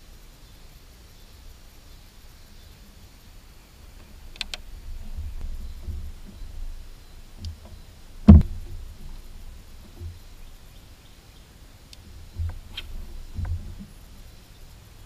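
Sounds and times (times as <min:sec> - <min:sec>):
faint clicks: 0:04.0 - 0:10.7, 0:11.8 - 0:14.1
thumps inside a boat: 0:04.5 - 0:10.7, 0:12.1 - 0:14.2
sharp loud knock: 0:08.3 - 0:08.9.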